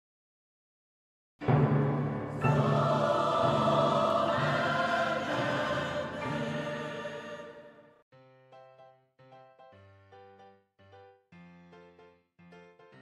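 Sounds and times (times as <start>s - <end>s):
choral chord with orchestra: 1.4s - 8.0s.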